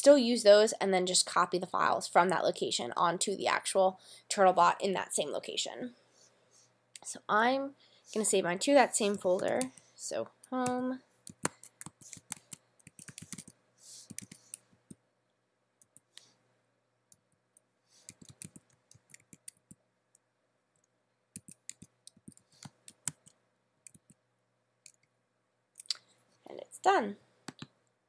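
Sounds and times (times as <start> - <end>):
computer keyboard typing: 9.0 - 9.8, 10.5 - 15.0, 18.0 - 19.8, 21.4 - 24.2.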